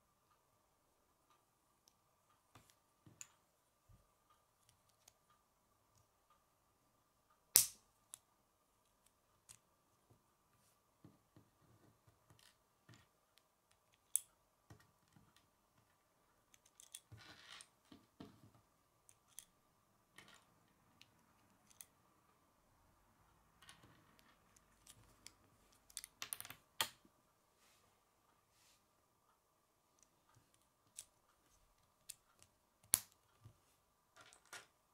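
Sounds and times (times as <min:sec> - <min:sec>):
plastic pieces snapping together: 0:07.5 - 0:07.8.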